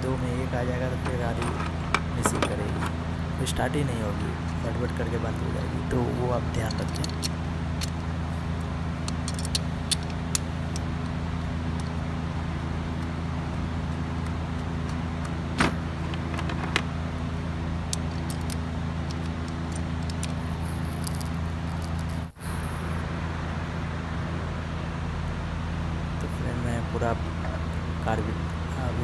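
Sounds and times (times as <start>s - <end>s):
low mechanical hum: 0.0s - 29.0s
connectors clicking: 0.7s - 3.0s, 6.5s - 8.0s, 8.6s - 12.0s, 12.9s - 17.0s, 17.8s - 22.3s.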